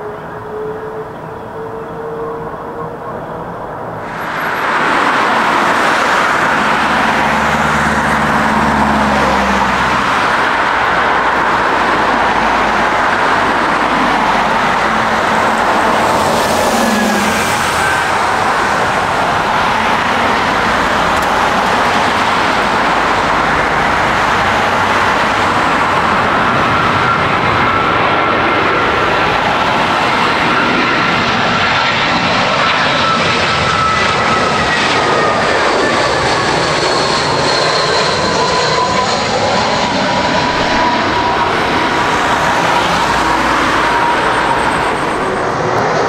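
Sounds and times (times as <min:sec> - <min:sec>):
faint engine whine: 0:00.0 - 0:46.0
jet engines roaring: 0:00.0 - 0:46.0.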